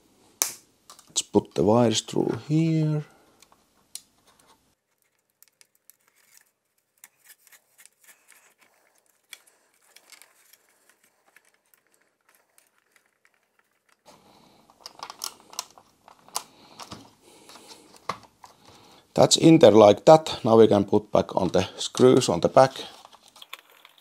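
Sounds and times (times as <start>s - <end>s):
faint clicks and rustling: 3.3s - 18.8s.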